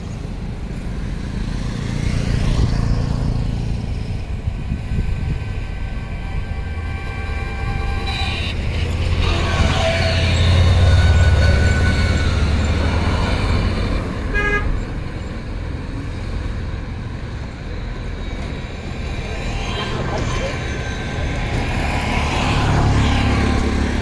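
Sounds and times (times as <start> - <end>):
heavy vehicle rumble: 0.0 - 24.0
vehicle horns: 4.6 - 12.7, 14.3 - 14.8.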